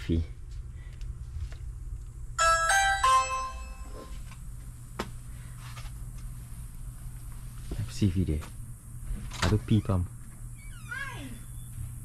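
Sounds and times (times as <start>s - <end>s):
doorbell chime: 2.4s - 4.2s.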